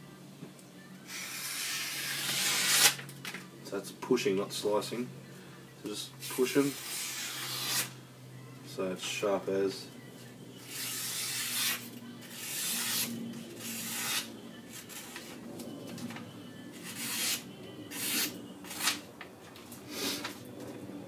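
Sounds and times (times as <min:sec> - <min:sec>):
knife blade cutting paper: 0:01.1 - 0:03.0, 0:06.3 - 0:07.9, 0:10.7 - 0:15.4, 0:16.8 - 0:19.0.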